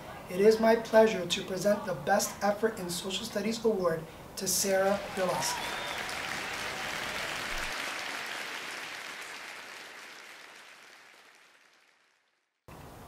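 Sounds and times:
audience applause: 4.7s - 12.4s.

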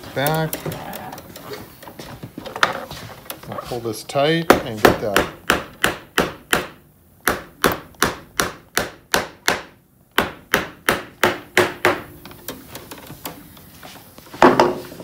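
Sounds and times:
small knocks and rubbing: 0.0s - 3.9s
tack hammer striking tacks into wood: 4.5s - 12.1s.

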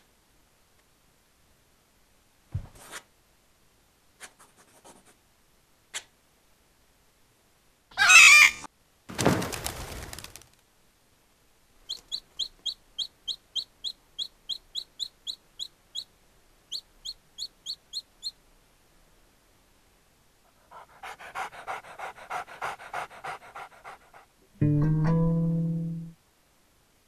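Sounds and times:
cartoon bird squawk: 7.9s - 8.7s
high chick-like peeps: 7.9s - 8.7s, 11.8s - 16.1s, 16.7s - 18.4s.

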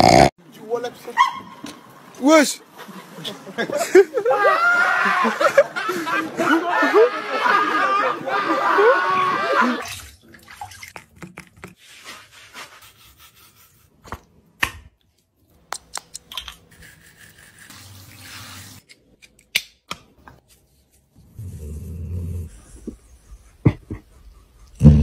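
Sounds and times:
small water splashes: 9.8s - 11.5s
water dripping: 9.8s - 11.8s.

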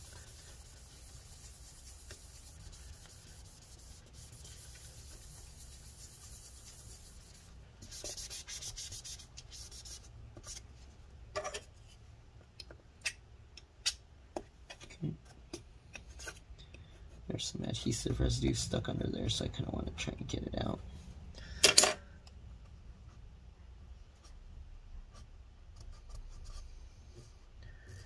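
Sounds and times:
paper towel rubbing on metal: 0.0s - 10.0s.

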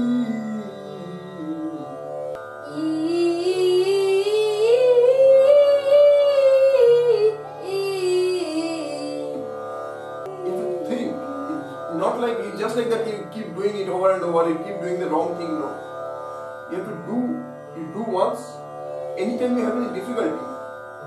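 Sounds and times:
steady drone: 10.2s - 13.2s.

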